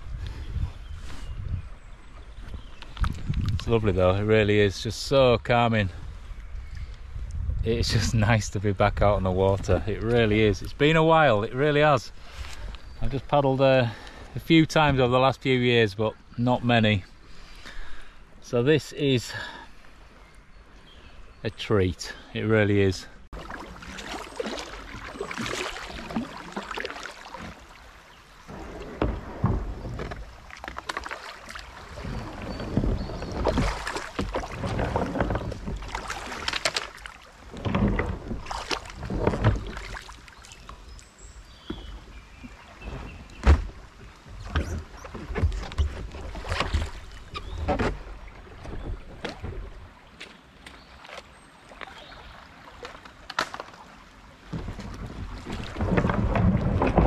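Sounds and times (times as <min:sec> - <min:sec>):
paddle splashing in water: 0:22.8 - 0:57.0
paddle knocking on rocks: 0:28.5 - 0:40.8, 0:54.4 - 0:57.0.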